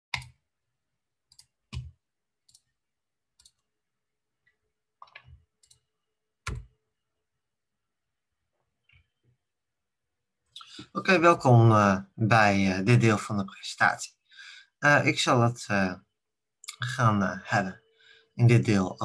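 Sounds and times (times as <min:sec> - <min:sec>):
computer mouse clicks and knocks: 0:00.1 - 0:00.4, 0:01.3 - 0:02.8, 0:03.4 - 0:03.7, 0:04.4 - 0:06.8.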